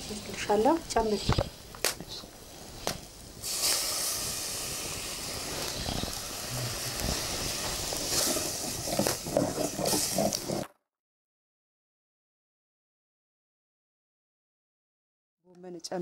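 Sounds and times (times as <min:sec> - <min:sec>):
porridge hissing in a pot: 0:00.0 - 0:10.7.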